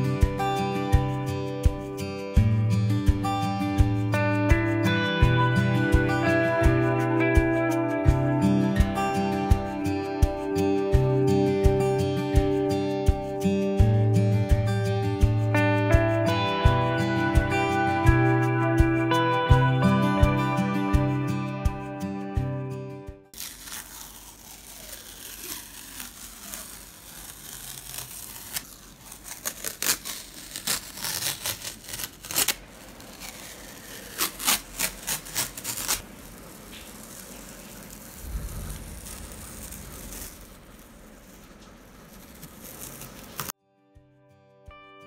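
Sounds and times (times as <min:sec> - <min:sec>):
masking tape peeling: 0:23.3 - 0:43.6.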